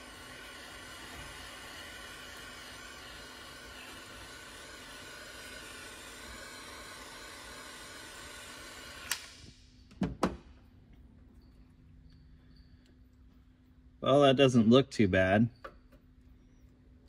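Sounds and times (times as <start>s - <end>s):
butane torch hissing: 0.0s - 9.6s
torch switch clicks: 9.0s - 9.6s.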